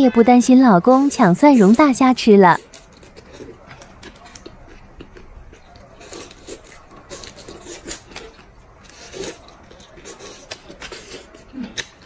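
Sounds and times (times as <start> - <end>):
wet chewing and slurping: 2.5 - 12.0.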